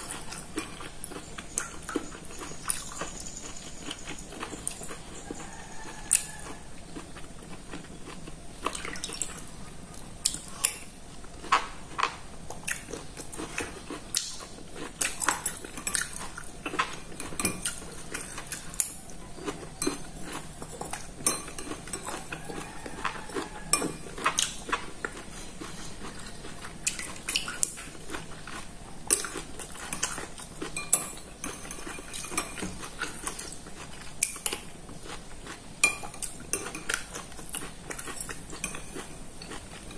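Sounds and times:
soft eating sounds: 0.0 - 39.9
spoon clinking on ceramic bowl: 20.7 - 22.3, 30.7 - 32.9.

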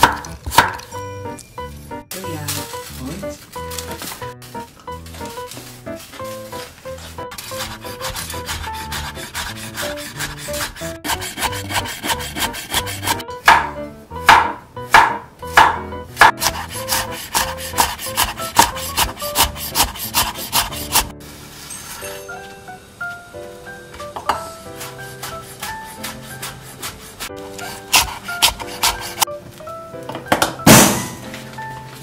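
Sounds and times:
knife chopping on wooden board: 0.0 - 0.9, 7.3 - 21.1, 24.8 - 29.3.

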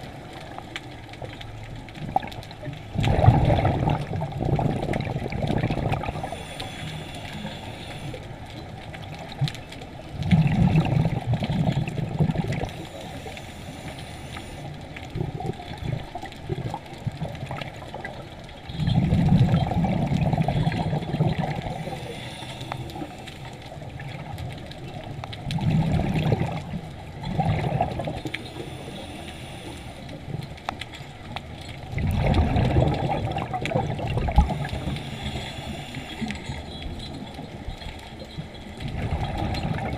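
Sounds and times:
diver exhaling bubbles underwater: 2.9 - 6.5, 10.2 - 12.8, 18.8 - 22.2, 25.5 - 28.3, 31.9 - 35.8
regulator hiss: 6.1 - 8.2, 12.7 - 14.8, 21.7 - 23.6, 28.4 - 30.1, 34.5 - 36.6.

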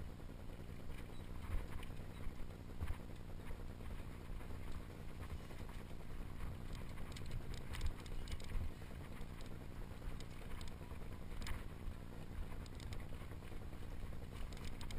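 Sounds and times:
wind rumble on microphone: 0.0 - 14.9
bike clicks and rattles: 6.4 - 11.8, 12.4 - 13.6, 14.2 - 14.9.

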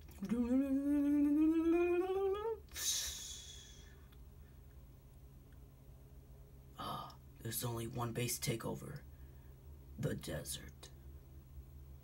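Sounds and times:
person humming rising note: 0.2 - 4.0
breathy hissing exhale: 2.7 - 4.1.

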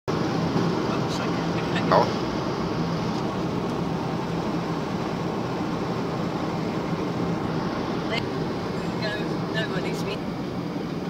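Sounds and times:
car road and engine noise: 0.1 - 11.0.

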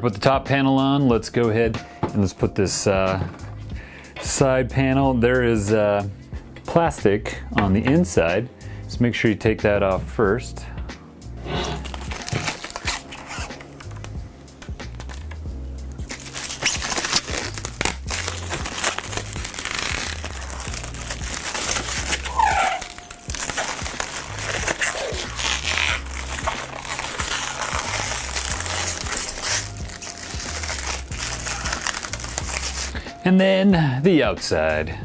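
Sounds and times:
background music with bass beat: 1.0 - 35.0
plastic film crinkling: 11.6 - 14.2, 14.9 - 15.4, 16.0 - 33.0.

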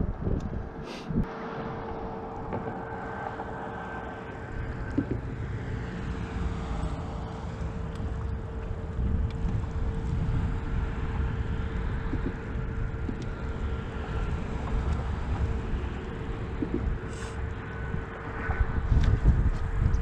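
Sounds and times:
wind rumble on microphone: 0.0 - 20.0.

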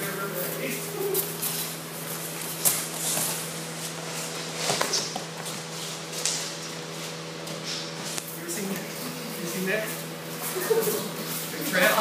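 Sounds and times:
steady hum: 0.0 - 12.0
bare feet shuffling on mats: 1.1 - 8.3.

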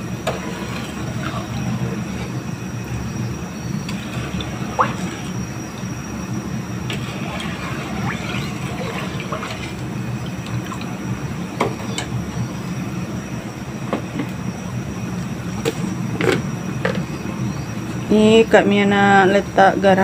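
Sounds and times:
metal ladle scraping a pot: 0.2 - 2.5, 6.9 - 9.8.

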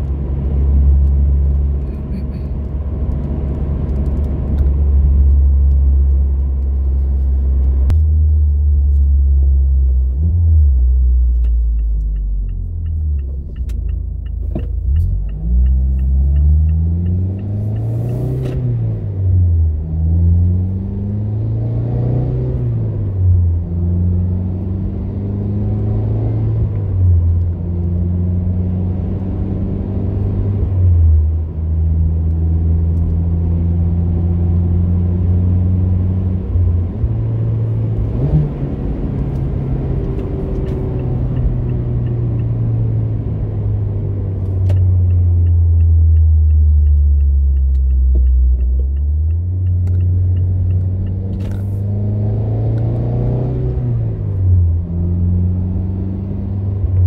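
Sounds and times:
car exhaust note while driving: 0.0 - 18.5, 19.5 - 57.0
light ticking: 11.3 - 18.2, 44.4 - 51.2.

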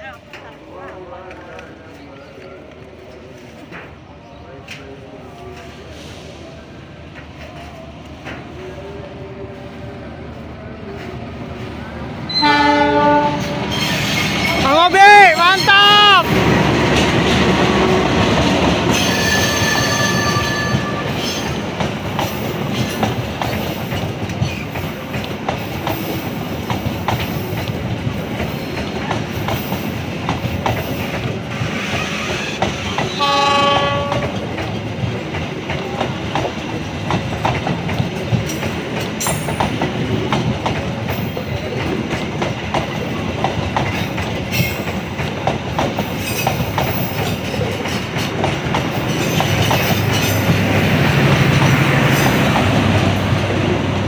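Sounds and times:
passenger train rumbling past: 0.0 - 54.0
train horn blast: 12.3 - 13.8, 33.1 - 34.4
wheels clattering over rail joints: 33.8 - 53.4.

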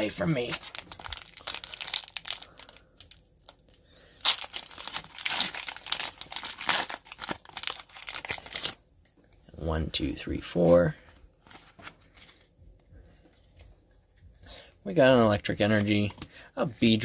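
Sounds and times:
foil wrapper crinkling and tearing: 0.2 - 8.8.

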